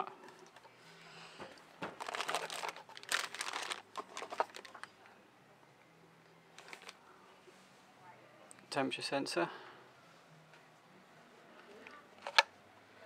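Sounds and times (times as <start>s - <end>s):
plastic bag crinkling: 2.0s - 4.9s, 6.6s - 7.0s.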